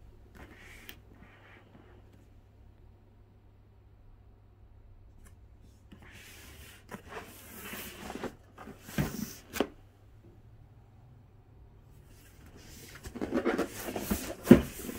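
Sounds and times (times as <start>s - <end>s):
packaging rustling and scraping: 6.8s - 9.8s, 12.2s - 14.9s.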